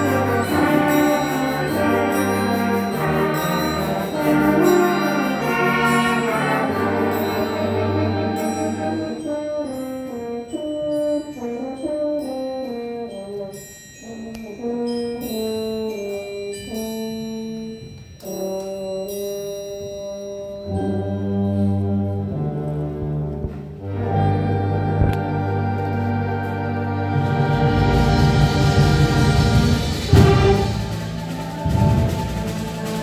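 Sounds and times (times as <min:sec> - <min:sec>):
brass solo melody: 0:00.0 - 0:13.5
band with sustained brass: 0:00.0 - 0:19.2, 0:20.5 - 0:33.0.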